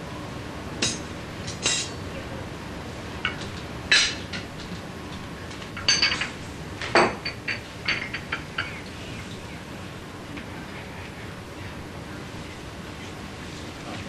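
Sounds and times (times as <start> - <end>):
tableware clinking: 5.8 - 8.8.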